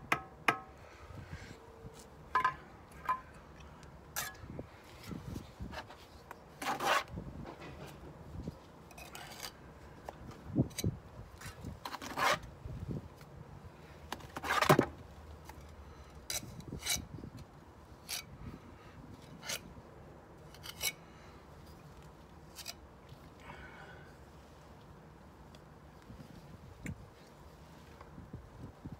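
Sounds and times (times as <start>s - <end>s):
trowel scraping mortar: 6.6s - 7.1s, 11.9s - 12.5s.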